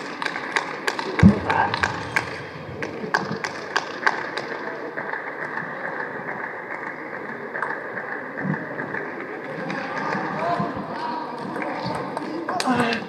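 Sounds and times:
dull low thump: 1.2s - 3.7s
hall hum: 1.2s - 4.1s.

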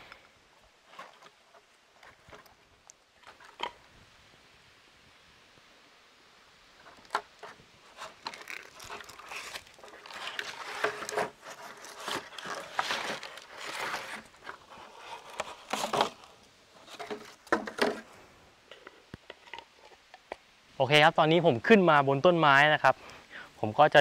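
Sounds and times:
scraping and rustling against bark: 0.8s - 3.8s, 6.8s - 20.4s.

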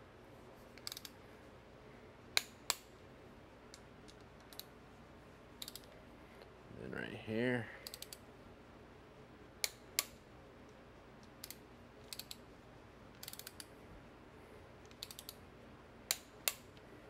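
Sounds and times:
torque wrench clicks: 0.8s - 1.2s, 5.6s - 5.9s, 7.8s - 8.2s, 11.3s - 12.4s, 13.2s - 13.7s, 14.9s - 15.4s
faint ratchet ticks: 7.8s - 8.2s, 11.2s - 12.4s, 13.2s - 13.7s, 14.8s - 15.4s.

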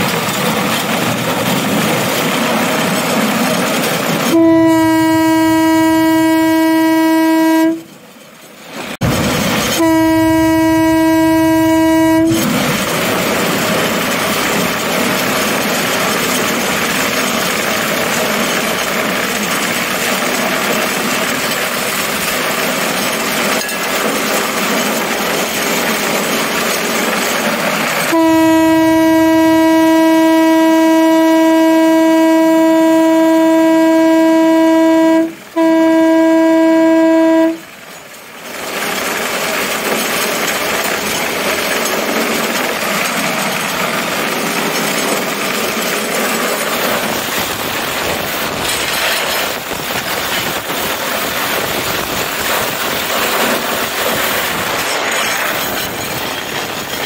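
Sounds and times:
rail cart running on track: 0.0s - 57.0s
horn blast: 4.2s - 8.0s, 9.0s - 13.4s, 28.1s - 37.7s.

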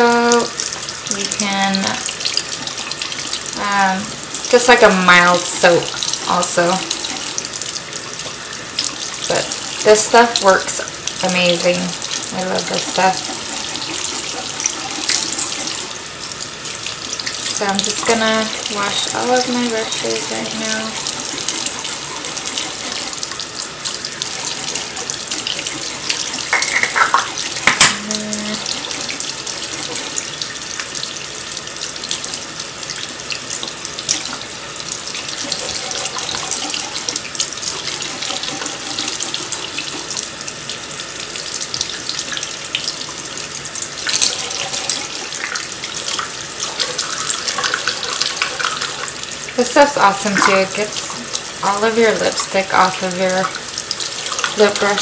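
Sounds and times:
faucet running into sink: 0.0s - 55.0s.

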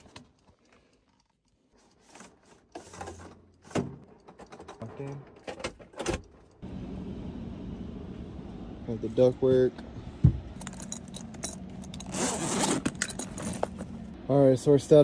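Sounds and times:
blower rushing air with hum: 6.6s - 9.2s.

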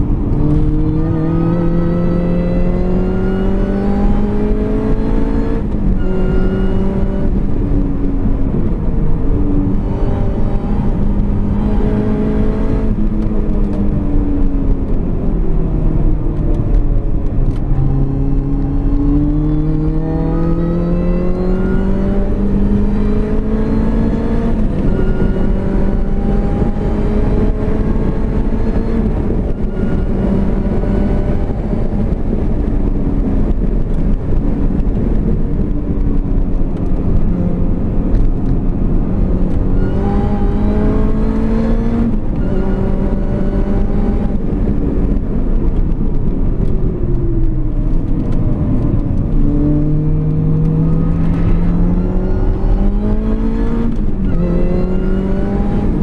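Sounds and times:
car engine accelerating: 0.0s - 56.0s.

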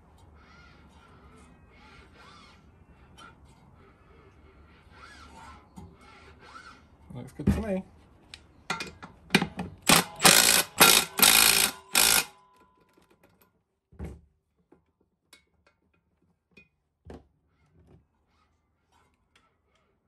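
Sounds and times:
impact driver hammering bolts: 9.4s - 12.4s.

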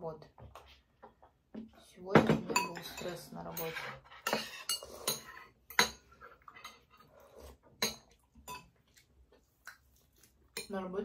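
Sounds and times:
utensils clinking against bowls: 2.2s - 8.8s, 10.5s - 11.0s
chewing: 6.3s - 10.6s.

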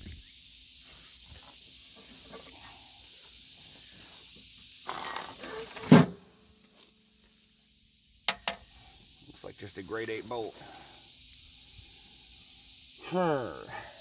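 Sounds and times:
metal parts clinking: 4.8s - 5.7s.

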